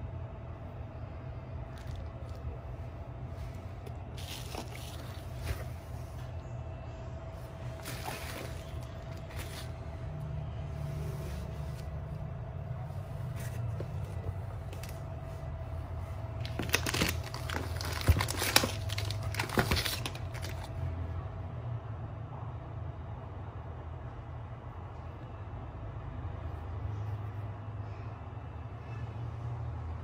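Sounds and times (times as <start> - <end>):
steady low hum: 0.0 - 30.0
plastic packaging crinkling: 3.8 - 5.8, 7.5 - 9.8, 16.2 - 20.8.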